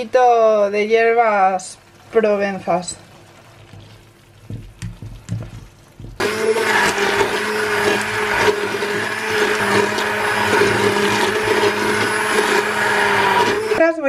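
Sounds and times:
hand blender running: 0:06.2 - 0:13.8.

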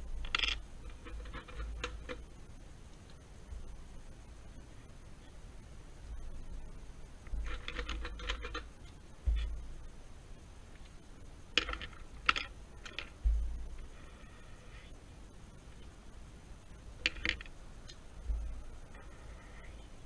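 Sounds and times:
pencils bumping against desk: 0:07.3 - 0:08.7, 0:11.6 - 0:14.0, 0:17.0 - 0:17.5
wooden pencils clicking: 0:11.6 - 0:13.3, 0:17.0 - 0:18.0.

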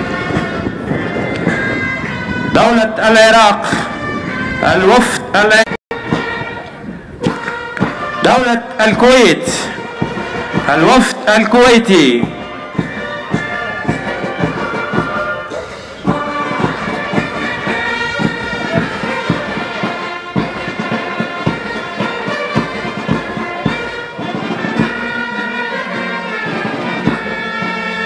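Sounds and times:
brass melody: 0:00.0 - 0:28.0
bass drum beat: 0:16.0 - 0:23.8.

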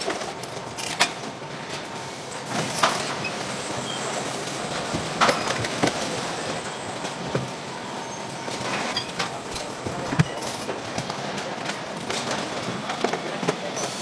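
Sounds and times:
machinery rumble: 0:04.4 - 0:13.1.

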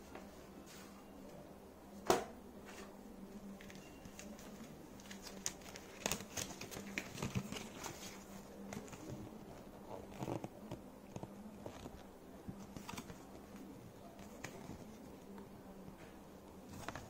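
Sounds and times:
paper rustling and crinkling: 0:02.7 - 0:15.4, 0:16.6 - 0:17.0.

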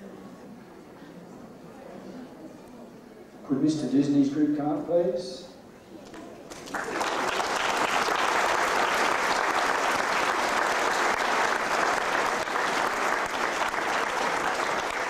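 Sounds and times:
audience applauding: 0:06.5 - 0:15.0.

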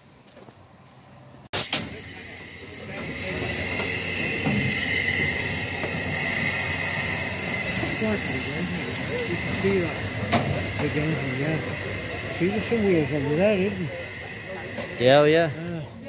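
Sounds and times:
steam hissing from locomotive: 0:01.5 - 0:16.0
sharp click: 0:01.6 - 0:01.9.

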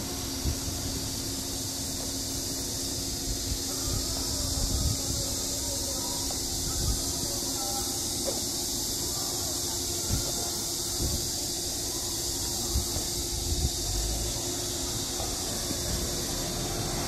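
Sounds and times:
high-pitched hiss: 0:00.0 - 0:17.0
wind rumble on microphone: 0:00.2 - 0:01.1, 0:03.2 - 0:05.5, 0:06.4 - 0:07.2, 0:10.9 - 0:11.4, 0:12.7 - 0:14.1.

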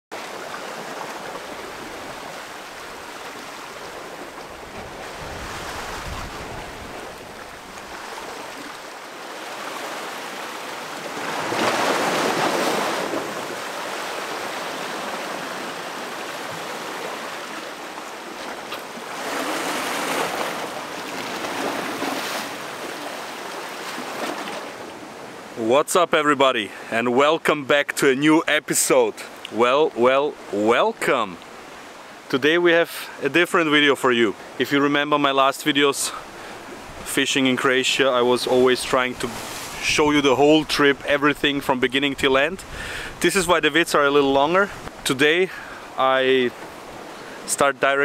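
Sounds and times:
surf breaking on rocky shore: 0:00.1 - 0:25.2, 0:36.0 - 0:48.0.

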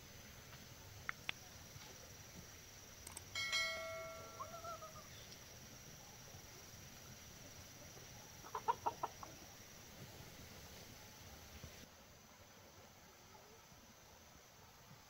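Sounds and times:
chicken clucking: 0:04.3 - 0:05.2, 0:07.9 - 0:09.6.

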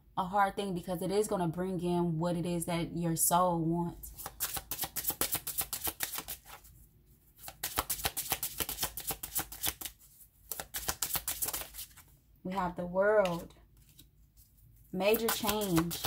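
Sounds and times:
cards being shuffled: 0:04.1 - 0:06.7, 0:07.4 - 0:12.1, 0:13.2 - 0:16.0.

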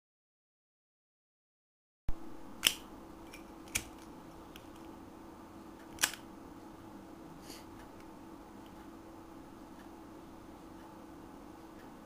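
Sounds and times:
steady low hum: 0:02.1 - 0:12.0.

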